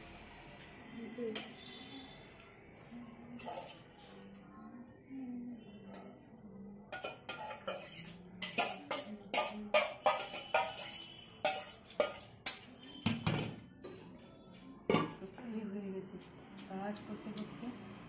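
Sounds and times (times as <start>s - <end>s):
metal spoon clinking on bowl: 3.4s - 3.9s, 6.9s - 13.3s.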